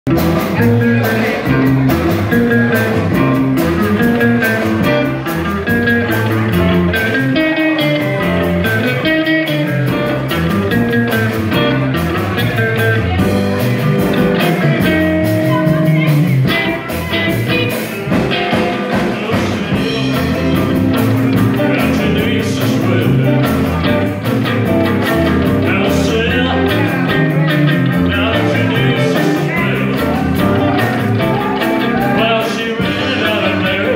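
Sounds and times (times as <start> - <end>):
acoustic guitar: 0.1 - 33.9
drum kit: 0.1 - 33.9
electric guitar: 0.1 - 33.9
man singing: 0.5 - 3.0, 14.4 - 24.2, 25.0 - 33.9.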